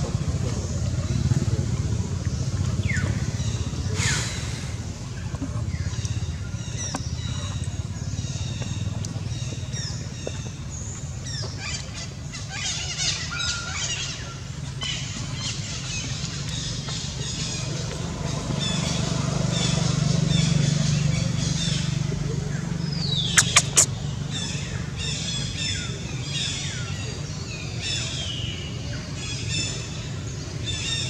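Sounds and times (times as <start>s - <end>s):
low engine drone: 17.2s - 25.0s
high chirping calls: 23.0s - 24.0s.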